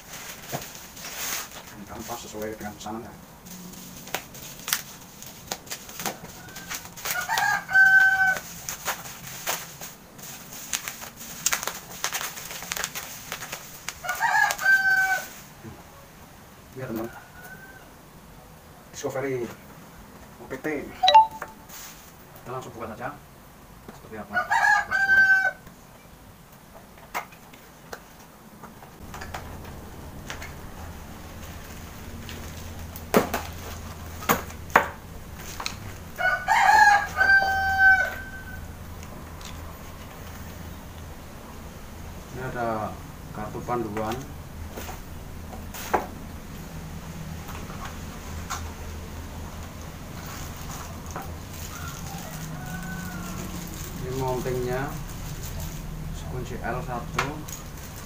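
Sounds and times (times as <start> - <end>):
plastic packaging crinkling: 0.0 - 2.6, 3.5 - 15.4, 50.1 - 55.9, 57.3 - 58.0
rooster crowing: 6.2 - 8.5, 14.0 - 15.4, 24.3 - 25.7, 36.1 - 38.8, 51.5 - 54.4.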